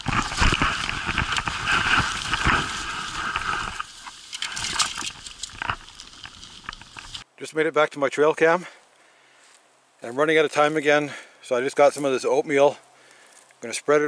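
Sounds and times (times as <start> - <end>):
footsteps crunching through snow: 0.0 - 7.2
jacket and straps rustling: 0.0 - 7.3.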